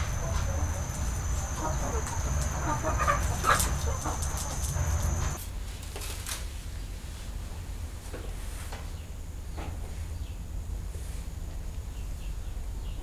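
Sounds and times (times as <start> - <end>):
domestic animal calls: 0.0 - 5.4
steady low rumble: 0.0 - 5.4
outdoor ambience: 0.0 - 13.0.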